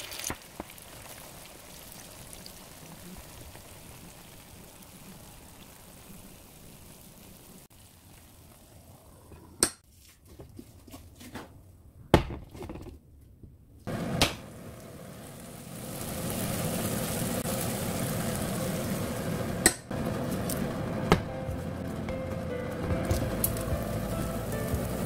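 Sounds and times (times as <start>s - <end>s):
omelette sizzling in pan: 0.0s - 9.1s, 13.9s - 20.9s.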